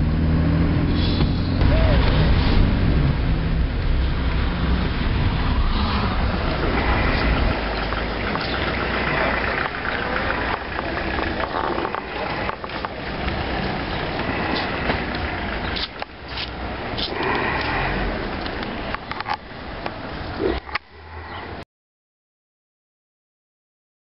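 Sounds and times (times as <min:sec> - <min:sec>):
car engine and road noise: 0:00.0 - 0:21.6
outdoor street background: 0:00.0 - 0:21.6.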